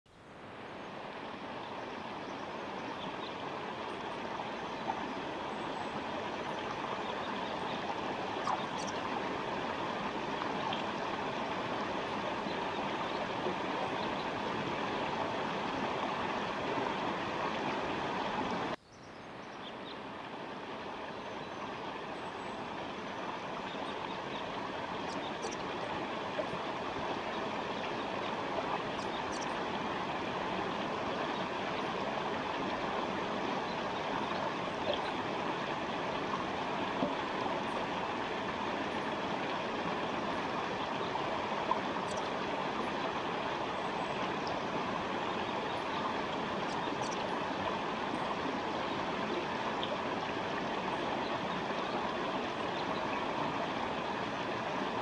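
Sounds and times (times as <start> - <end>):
stream flowing: 0.1 - 55.0.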